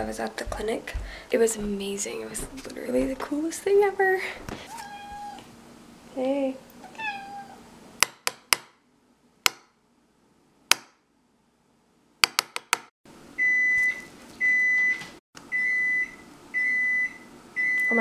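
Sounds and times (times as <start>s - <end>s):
appliance beeping: 13.4s - 18.0s.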